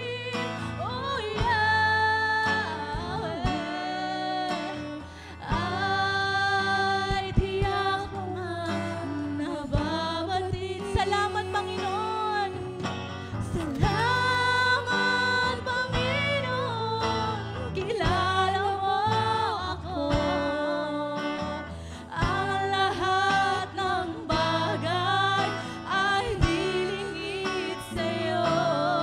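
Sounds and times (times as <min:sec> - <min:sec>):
acoustic guitar: 0:00.0 - 0:29.0
electric bass: 0:00.0 - 0:29.0
woman singing into a microphone: 0:00.0 - 0:29.0
drum kit: 0:12.9 - 0:15.4.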